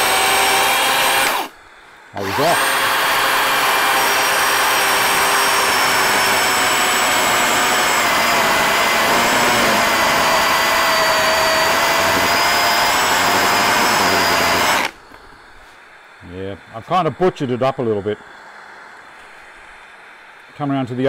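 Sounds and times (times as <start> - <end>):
chainsaw cutting wood: 0.0 - 1.6, 2.2 - 15.0.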